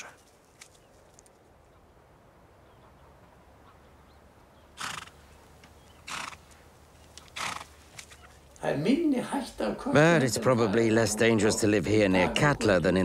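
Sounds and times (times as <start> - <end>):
horse rough bursts: 4.8 - 5.2, 6.0 - 6.6, 7.3 - 8.1.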